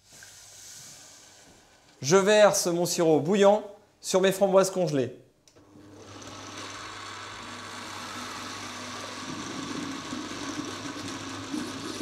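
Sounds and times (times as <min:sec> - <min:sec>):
blender motor humming: 0:05.6 - 0:12.0.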